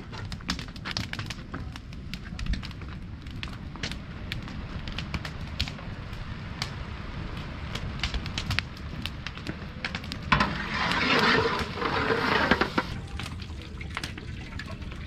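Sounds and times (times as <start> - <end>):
wood fire crackling and popping: 0.0 - 15.0
ladle sloshing boiling liquid: 10.3 - 15.0.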